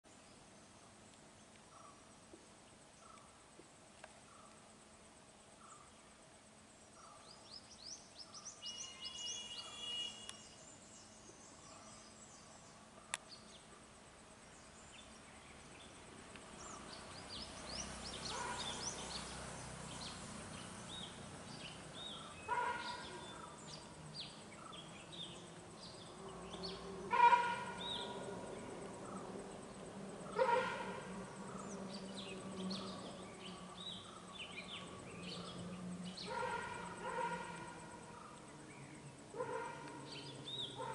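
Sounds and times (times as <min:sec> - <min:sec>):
small birds chirping: 0:05.5 - 0:30.6, 0:31.2 - 0:40.9
louder bird call: 0:08.6 - 0:10.6, 0:26.7 - 0:28.2.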